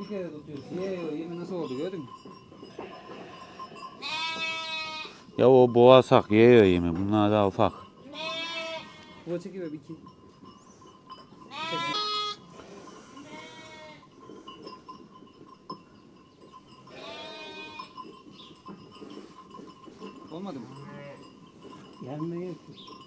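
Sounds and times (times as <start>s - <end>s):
sheep and lambs bleating: 2.8s - 5.3s, 8.0s - 9.4s, 11.5s - 14.1s, 16.8s - 18.0s, 20.7s - 21.3s.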